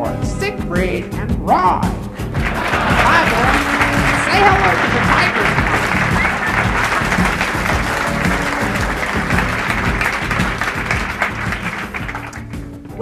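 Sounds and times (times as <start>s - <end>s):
music with steady beat: 0.0s - 13.0s
audience applauding: 2.3s - 12.6s.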